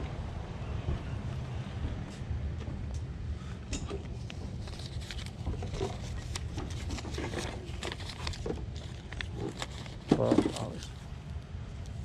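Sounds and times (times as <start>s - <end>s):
banknotes rustling: 4.2s - 11.0s.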